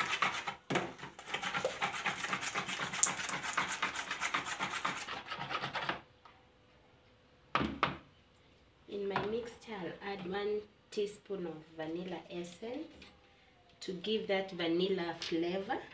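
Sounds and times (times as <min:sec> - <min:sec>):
fork scraping plastic bowl: 0:00.0 - 0:06.0.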